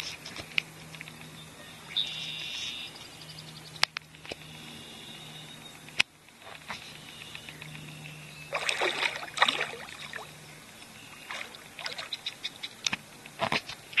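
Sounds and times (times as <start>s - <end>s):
water lapping and dripping: 5.7s - 14.0s
water splashing: 8.5s - 14.0s.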